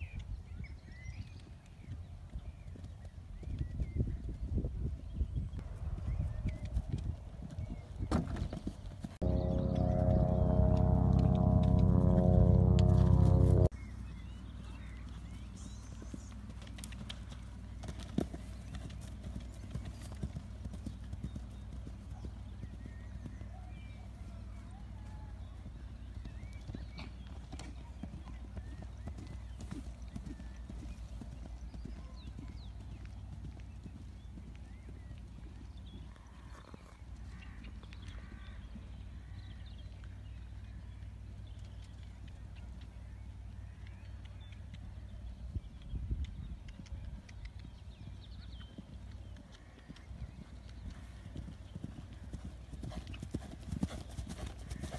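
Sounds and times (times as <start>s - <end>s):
steady low rumble: 9.2s - 13.7s
pony hoofbeats cantering on turf: 15.1s - 24.0s, 25.1s - 37.7s, 46.4s - 54.9s.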